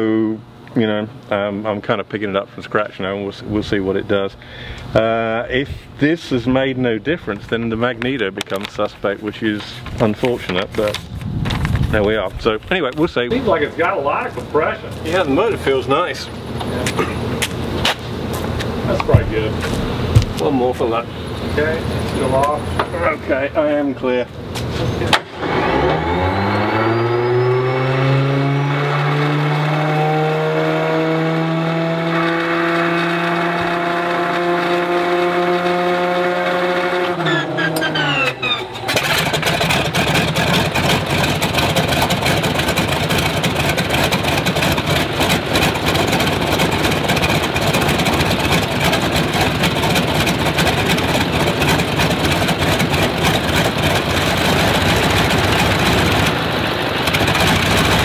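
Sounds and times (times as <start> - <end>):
radial engine running: 33.6 - 58.0
starter motor whining: 37.1 - 58.0.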